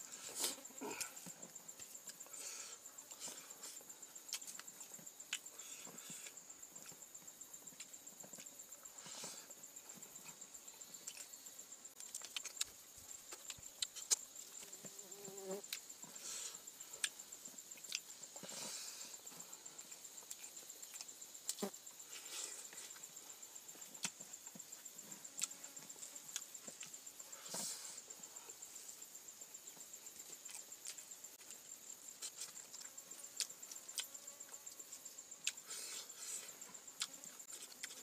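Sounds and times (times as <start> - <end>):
high-pitched insect trill: 0.0 - 38.0
chewing and wet smacks: 12.0 - 14.7, 32.2 - 34.2, 37.0 - 38.0.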